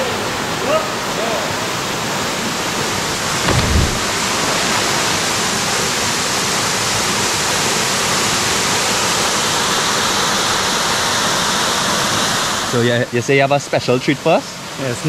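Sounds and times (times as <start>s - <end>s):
waterfall rushing: 0.8s - 6.6s
low rumble: 3.4s - 4.5s.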